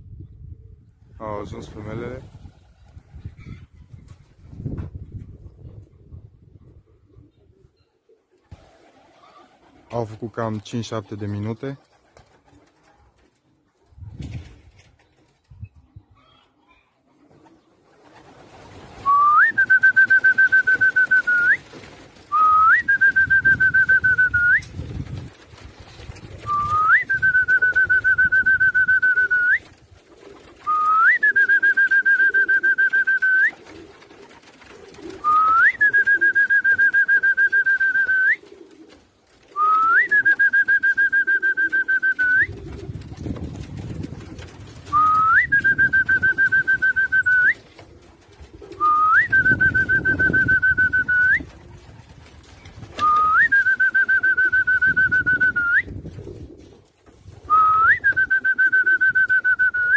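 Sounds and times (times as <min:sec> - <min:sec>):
pigeons cooing: 0:05.4 - 0:09.9, 0:29.9 - 0:36.6, 0:38.4 - 0:40.4, 0:41.4 - 0:46.9, 0:47.6 - 0:50.4.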